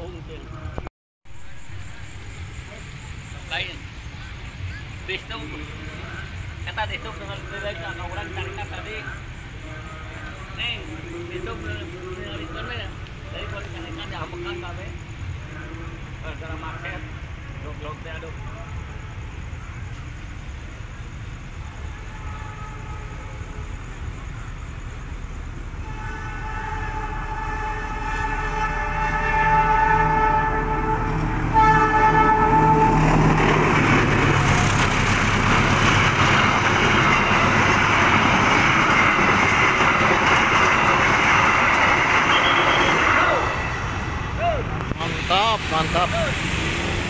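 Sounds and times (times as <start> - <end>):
train rumble: 0.0 - 47.0
train horn sounding: 21.8 - 23.7, 25.8 - 34.0, 42.1 - 44.3.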